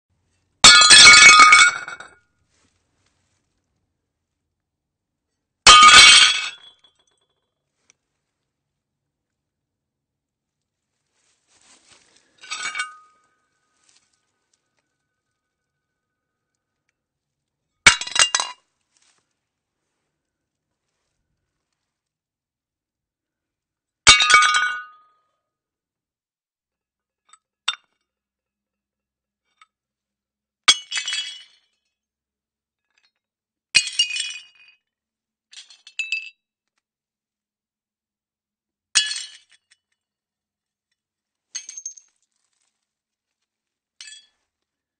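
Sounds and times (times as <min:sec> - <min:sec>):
plates smashing: 0:00.6 - 0:02.1, 0:05.7 - 0:06.8
shards clinking: 0:00.7 - 0:02.2, 0:12.3 - 0:14.0.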